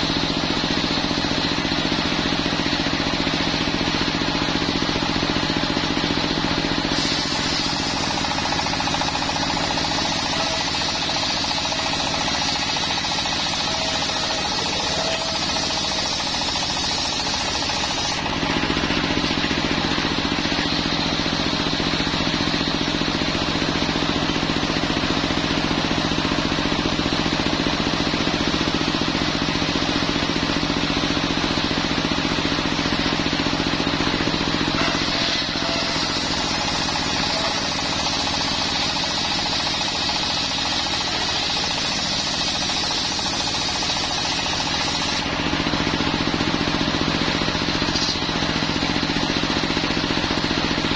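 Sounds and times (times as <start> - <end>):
diesel engine running: 0.0 - 50.9
circular saw cutting log: 6.6 - 19.1, 34.7 - 45.3.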